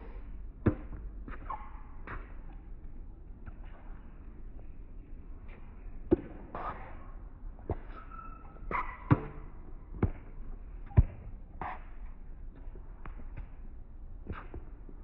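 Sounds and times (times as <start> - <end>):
rackets striking tennis ball: 8.7 - 10.3
ball bouncing on hard court: 8.7 - 11.8.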